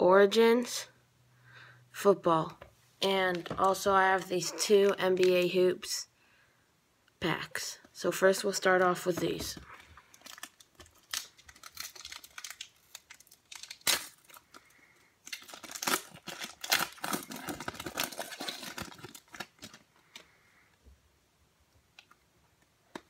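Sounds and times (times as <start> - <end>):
foil card pack tearing and crinkling: 10.1 - 19.9.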